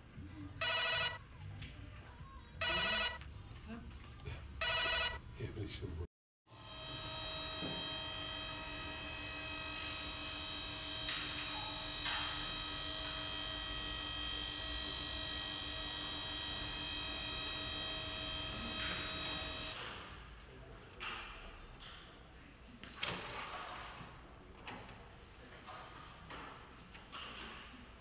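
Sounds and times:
electrical hum: 6.5 - 19.8.

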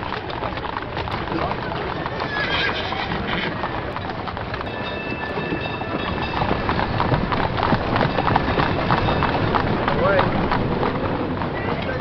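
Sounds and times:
horse hooves clopping on pavement: 0.0 - 12.0
cable car rumbling on rails: 4.0 - 12.0.

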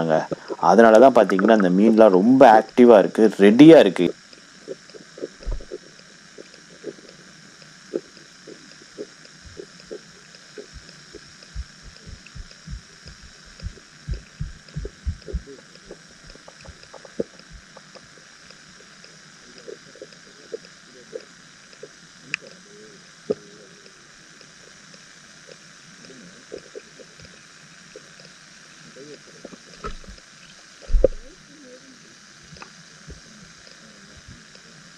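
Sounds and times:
underwater hiss: 0.0 - 34.9
low thumps: 5.4 - 5.8, 10.6 - 17.8, 29.8 - 30.2, 30.9 - 31.3.

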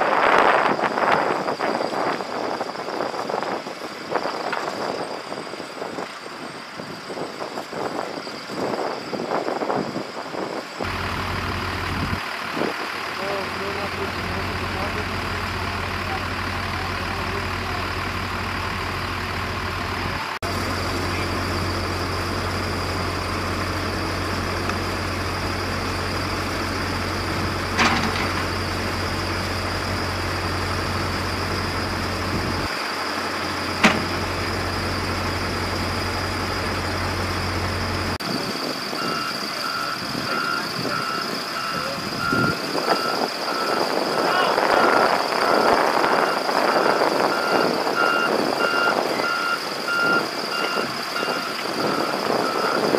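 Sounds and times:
construction equipment engine running: 0.0 - 52.9
vehicle reversing alarm beeping: 13.2 - 52.9.

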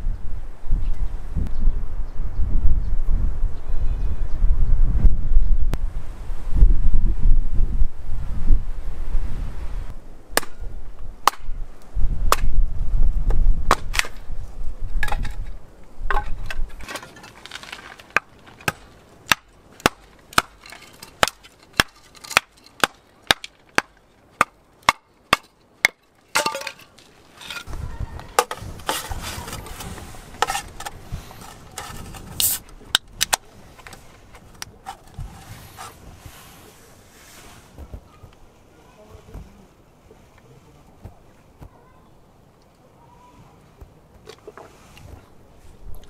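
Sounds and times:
wind buffeting microphone: 0.0 - 16.9, 27.6 - 37.1
hatchet splitting kindling on block: 16.1 - 32.6.

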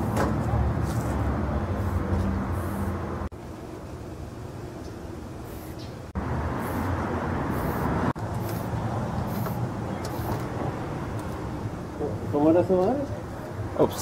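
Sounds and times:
street traffic rumble: 0.0 - 14.0
spray paint can hissing: 6.5 - 10.5.

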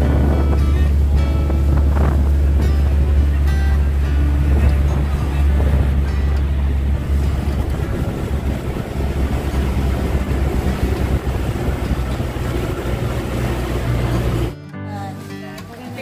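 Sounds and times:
wind buffeting microphone: 0.0 - 14.5
boat engine running: 0.0 - 14.6
water rushing past hull: 0.0 - 14.6.

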